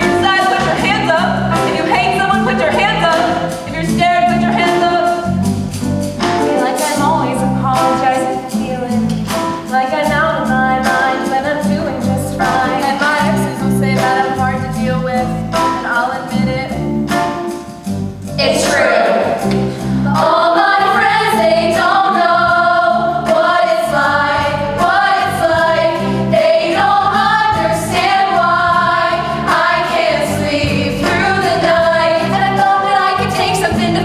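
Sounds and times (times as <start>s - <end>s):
pop beat and chords: 0.0s - 9.8s
woman singing: 9.7s - 15.3s.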